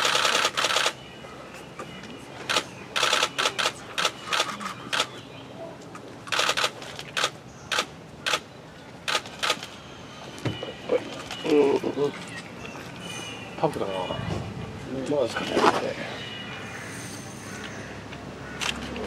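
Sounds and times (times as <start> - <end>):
camera shutters clicking: 0.0 - 1.0, 2.5 - 5.1, 6.3 - 8.4, 9.1 - 9.7, 18.6 - 18.8.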